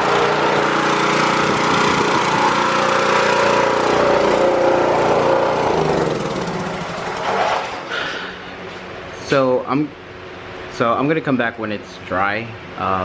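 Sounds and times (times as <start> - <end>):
pressure washer engine running: 0.0 - 9.1.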